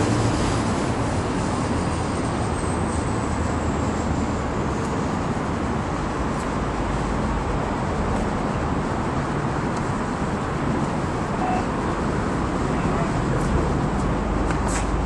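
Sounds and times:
freeway traffic noise: 0:00.0 - 0:15.0.

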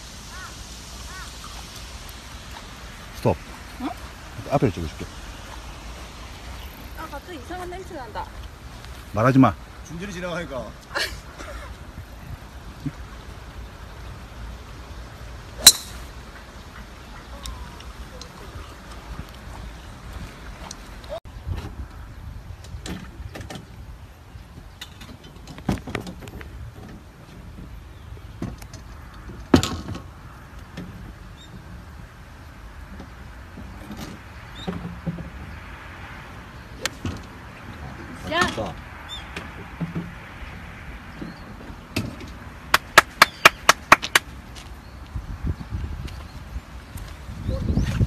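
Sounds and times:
wind buffeting microphone: 0:44.8 - 0:48.0.

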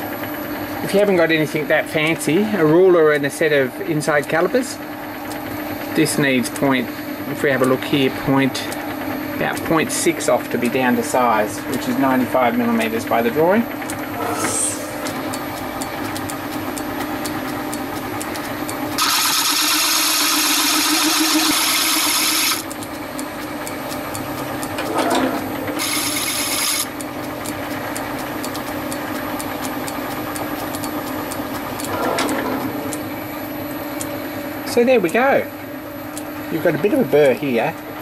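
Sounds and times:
metal lathe humming: 0:13.8 - 0:16.6, 0:24.6 - 0:27.0
lathe tool cutting metal hiss: 0:14.2 - 0:15.2, 0:19.0 - 0:22.6, 0:25.8 - 0:26.9.

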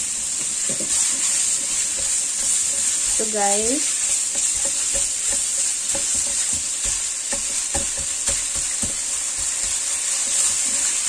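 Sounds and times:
meat sizzling in oil: 0:00.0 - 0:11.0
spatula scraping and tapping pan: 0:00.0 - 0:11.0.

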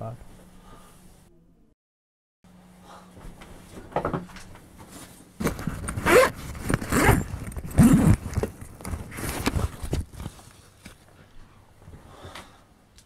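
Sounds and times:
bag unzipping and rustling: 0:05.4 - 0:10.4.

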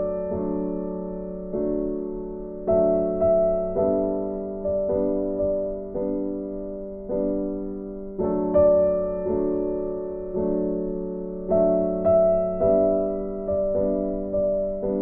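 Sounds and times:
slow gentle piano music: 0:00.0 - 0:15.0.

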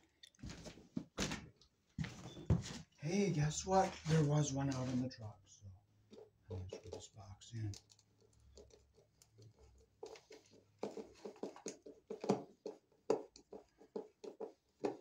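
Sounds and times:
screwdriver knocking on wooden boards: 0:10.8 - 0:15.0.

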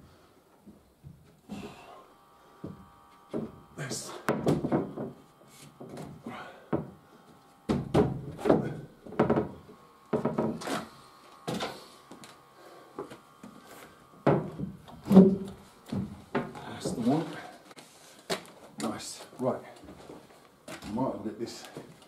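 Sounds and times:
wooden knocks and thuds: 0:02.6 - 0:03.6, 0:04.2 - 0:05.2, 0:05.8 - 0:07.0, 0:07.7 - 0:10.7, 0:14.2 - 0:17.1.

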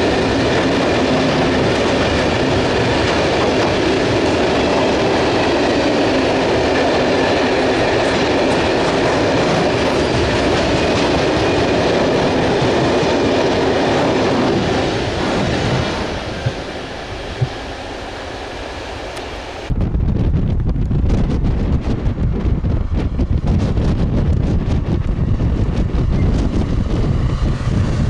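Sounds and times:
steel wheels clattering over rail joints: 0:00.0 - 0:17.6
diesel locomotive passing: 0:00.0 - 0:28.0
freight train rolling past: 0:00.0 - 0:28.0.

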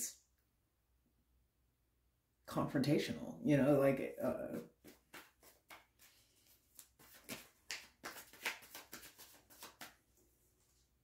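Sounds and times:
cards clicking and snapping: 0:04.8 - 0:10.0.

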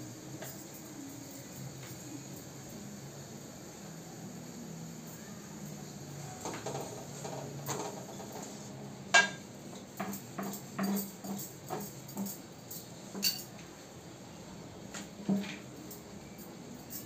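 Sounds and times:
faint steady hum: 0:00.0 - 0:17.0
cookware knocking and clinking: 0:09.1 - 0:09.4, 0:10.0 - 0:12.3.

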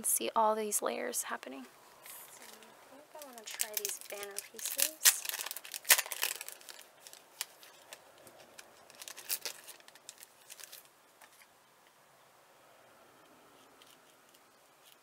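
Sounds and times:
paper rustling: 0:02.0 - 0:11.5.

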